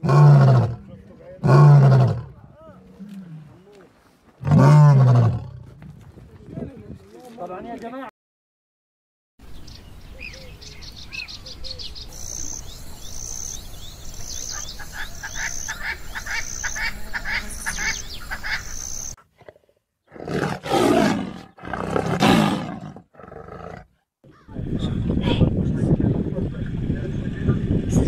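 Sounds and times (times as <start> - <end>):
lion roaring: 0.0 - 3.6, 4.4 - 5.7, 19.4 - 23.9
birds chirping: 9.4 - 19.2
low outdoor rumble: 24.5 - 28.0.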